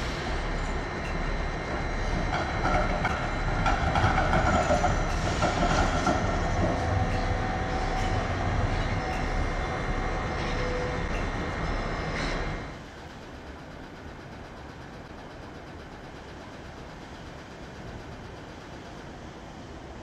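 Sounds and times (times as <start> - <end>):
tram rumble: 0.0 - 13.0
tram wheels clattering over rail joints: 1.6 - 11.4.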